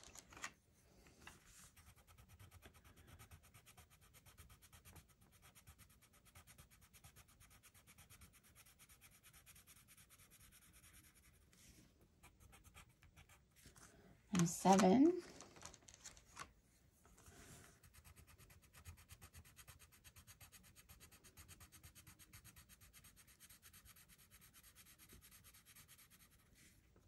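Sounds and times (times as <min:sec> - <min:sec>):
pencil scratching on paper: 0:01.5 - 0:13.5, 0:17.7 - 0:26.7.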